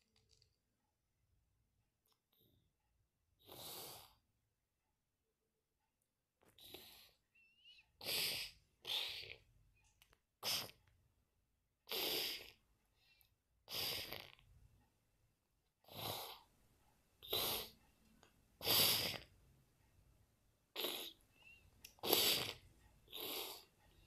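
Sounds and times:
short hissing breath-like huffs: 18.6s - 19.3s.

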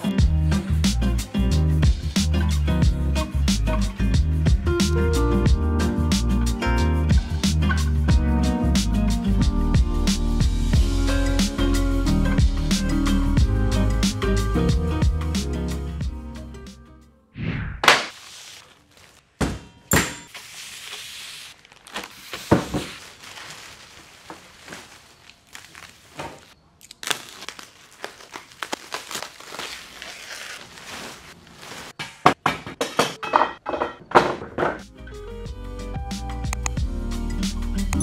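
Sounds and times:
plastic wrapping crinkling: 18.1s - 19.4s, 20.4s - 32.0s.

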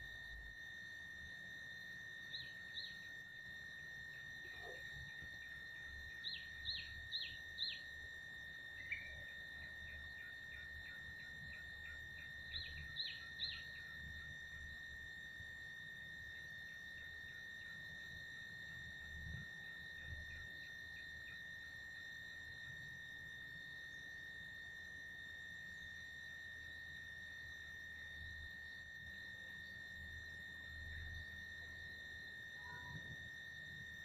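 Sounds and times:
high-pitched insect drone: 0.0s - 34.0s
bird chirping: 2.3s - 3.0s, 6.2s - 7.9s, 8.8s - 9.2s, 12.5s - 13.8s.

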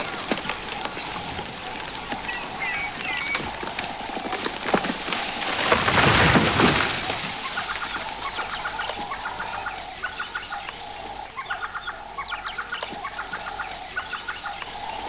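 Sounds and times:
bird chirps: 0.0s - 5.2s, 7.4s - 15.0s
branches snapping: 0.0s - 9.8s
tree cracking and crashing down: 0.0s - 9.8s.

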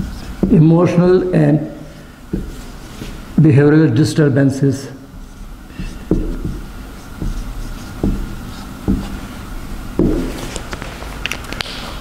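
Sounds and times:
marker squeaking on whiteboard: 0.0s - 0.5s, 5.1s - 9.4s
marker tapping on whiteboard: 5.1s - 9.2s, 10.0s - 10.4s.

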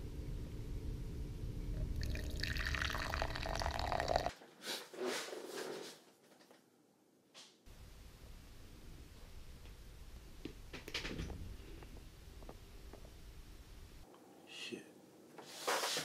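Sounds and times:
low hum: 0.0s - 3.6s, 7.7s - 14.5s
coffee pouring into a mug: 1.8s - 4.3s.

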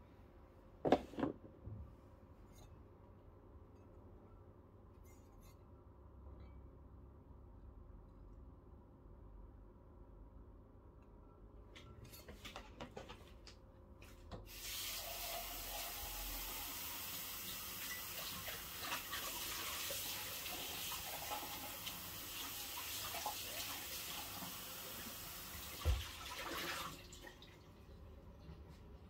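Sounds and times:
tap water running into sink: 14.4s - 27.6s.

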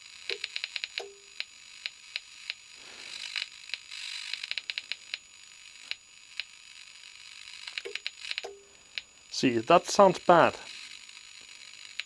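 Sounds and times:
electrical hiss: 0.0s - 12.0s
sharp electrical flashover clicks: 0.3s - 6.6s, 7.4s - 9.1s, 10.2s - 12.0s.

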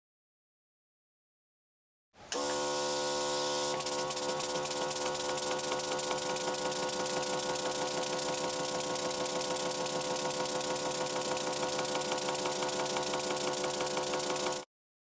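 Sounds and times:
fast ticking of spinning engine: 3.8s - 14.6s.

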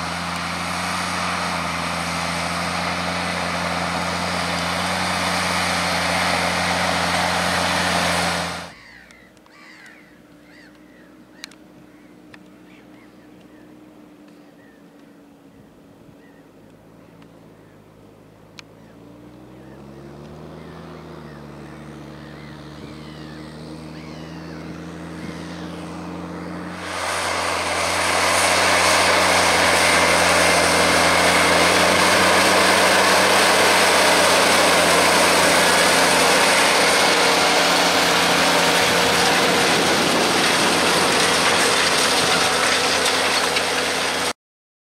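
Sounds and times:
tractor diesel engine under load: 0.0s - 44.4s
rushing noise: 25.6s - 44.3s.

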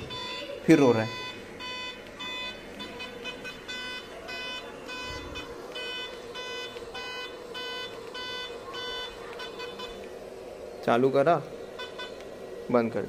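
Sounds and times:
alarm short electronic beeps: 0.0s - 10.0s.

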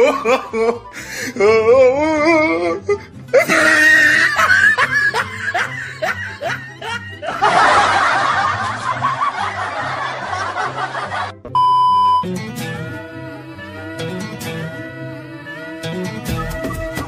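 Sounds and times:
comedy laughter effects: 0.0s - 1.0s, 3.3s - 11.5s
background music with bass line: 0.0s - 17.0s.

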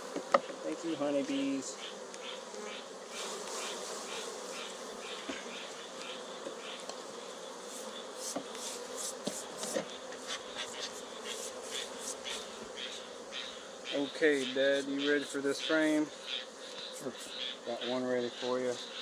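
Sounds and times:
bees buzzing: 0.0s - 19.0s
brush swishes: 7.6s - 12.5s.

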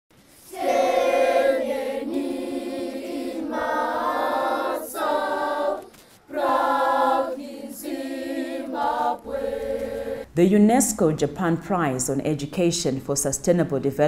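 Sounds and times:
choir singing: 0.4s - 10.3s.

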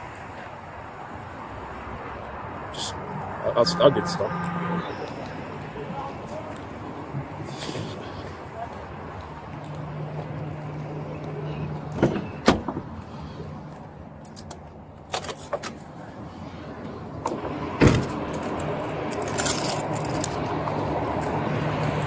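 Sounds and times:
keys jingling: 19.2s - 20.4s.

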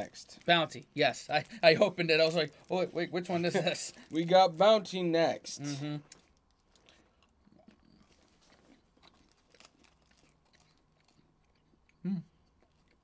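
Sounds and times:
faint chewing: 5.8s - 13.0s.

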